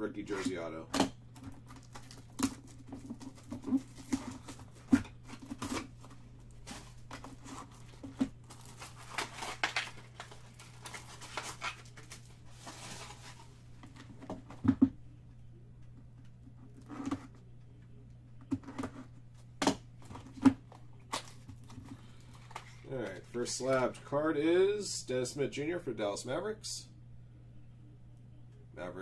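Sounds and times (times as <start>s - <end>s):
plastic wrap tearing and crinkling: 1.3s - 13.6s.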